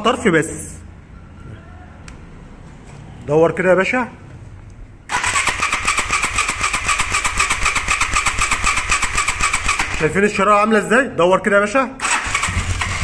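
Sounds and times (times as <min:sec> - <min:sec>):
motorcycle starter cranking: 0:05.1 - 0:10.2, 0:12.0 - 0:13.0.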